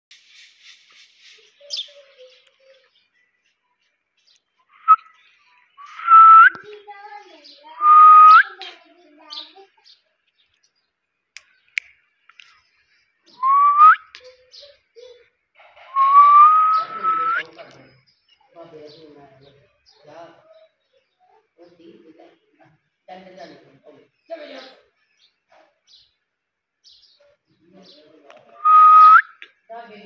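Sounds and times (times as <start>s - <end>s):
soft low bird chatter: 0.1s - 28.6s
parakeet whistling: 16.0s - 17.4s.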